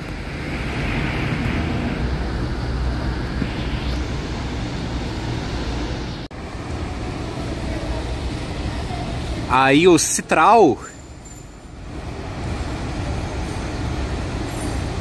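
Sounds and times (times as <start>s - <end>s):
bus engine drone: 0.0s - 15.0s.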